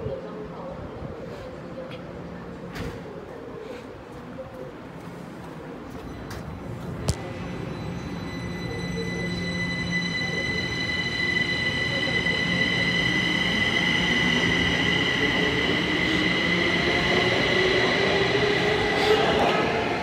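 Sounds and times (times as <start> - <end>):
electric train rumble: 6.4 - 20.0.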